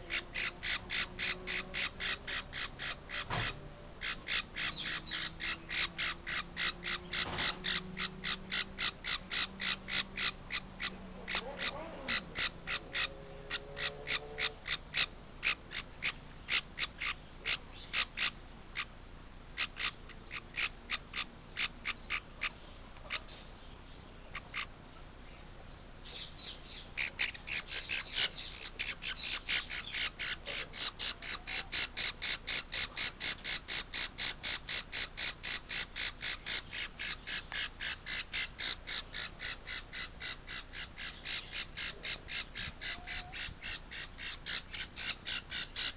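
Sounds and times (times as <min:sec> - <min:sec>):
parrot chick squawking: 0:00.0 - 0:18.9, 0:19.6 - 0:23.4, 0:26.1 - 0:45.9.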